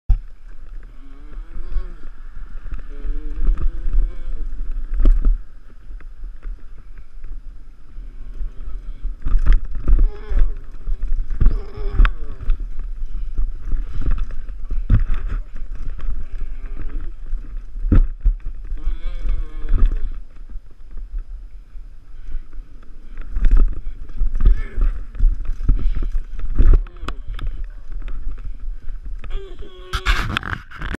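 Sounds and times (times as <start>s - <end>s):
wind rumble on microphone: 0.1s - 30.9s
person calling out: 29.3s - 30.2s.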